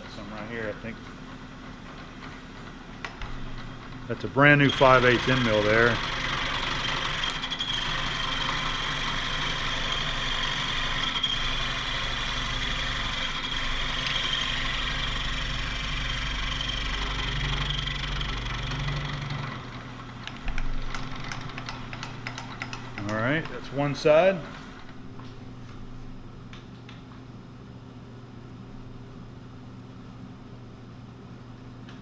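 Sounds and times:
end mill cutting steel: 4.0s - 25.0s.

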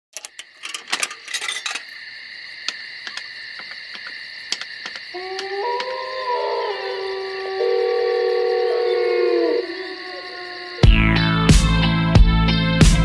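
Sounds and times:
metallic clinking and rattling: 0.1s - 1.9s.

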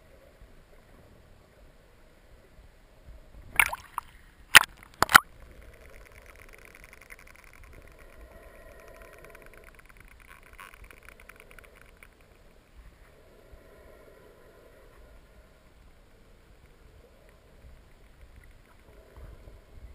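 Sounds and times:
whale click trains: 4.8s - 12.6s.

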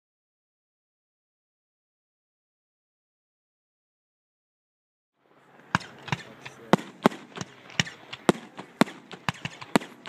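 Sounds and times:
fireworks bangs and pops: 5.6s - 10.0s.

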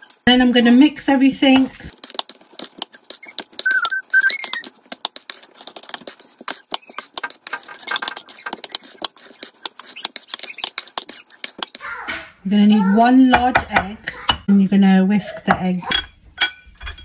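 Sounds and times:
metal utensil scraping steel bowl: 1.7s - 11.8s
short squeaks: 3.2s - 4.7s.

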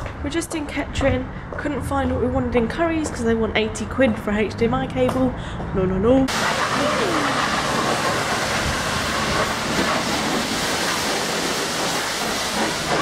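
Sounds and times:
pressure washer spraying water: 6.3s - 13.0s.

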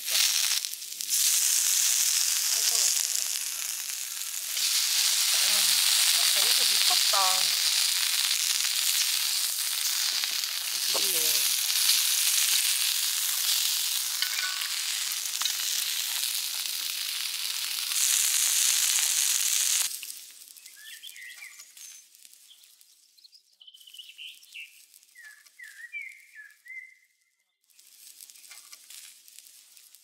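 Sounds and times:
food sizzling on a griddle: 0.0s - 26.7s, 27.7s - 30.0s
faint bird chirps: 20.6s - 27.6s.

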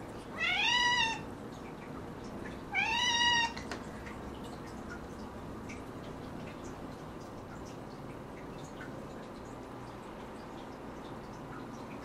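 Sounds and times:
cat meowing: 0.4s - 1.2s, 2.7s - 3.6s.

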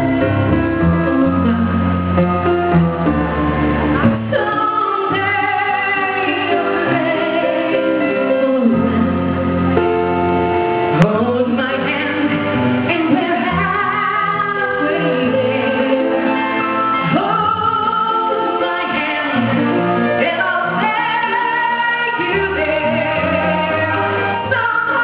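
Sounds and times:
instrumental accompaniment: 0.0s - 25.0s
woman singing slow song: 4.3s - 9.2s, 10.9s - 25.0s.

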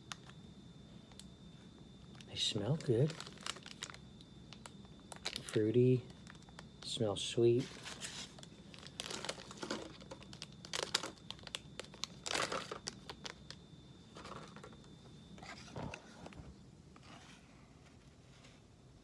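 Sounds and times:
plastic pouch crinkling: 2.1s - 6.9s, 7.7s - 13.6s.

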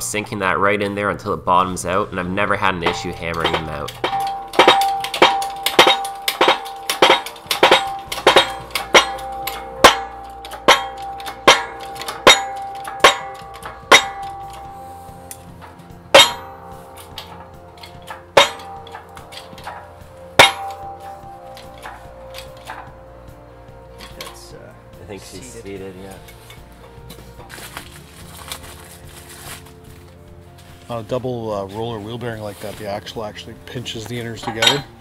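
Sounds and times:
ringing metal clanks of shop press: 2.8s - 24.5s, 34.2s - 35.0s.

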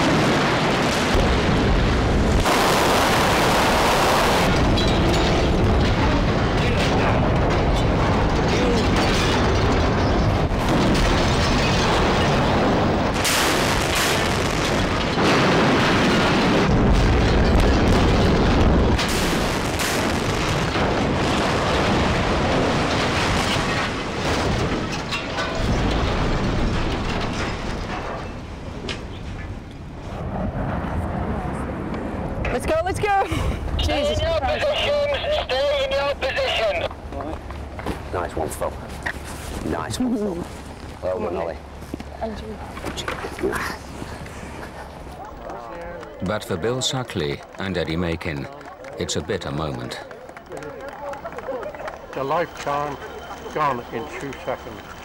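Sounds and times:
explosive charges going off: 0.0s - 28.3s
cranes crashing down: 0.0s - 28.4s, 46.7s - 55.0s.

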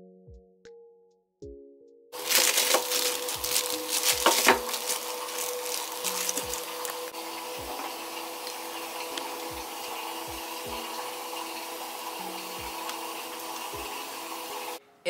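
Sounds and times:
plastic bag crinkling: 2.2s - 9.4s.

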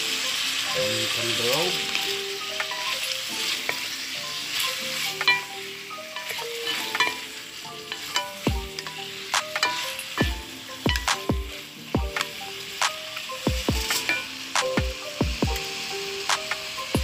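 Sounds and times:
wooden spatula stirring: 0.0s - 12.4s
food sizzling in hot oil: 0.0s - 17.0s.

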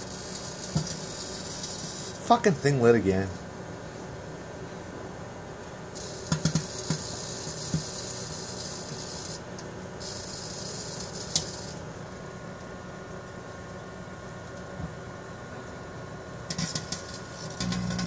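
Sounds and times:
microwave oven humming: 0.0s - 18.0s
burning gas hissing: 6.0s - 9.4s.

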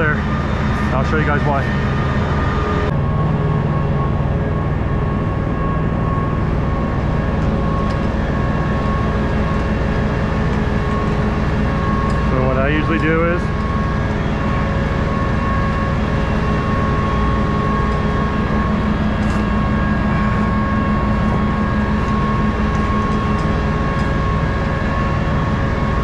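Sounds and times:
machine drone: 0.0s - 26.0s.

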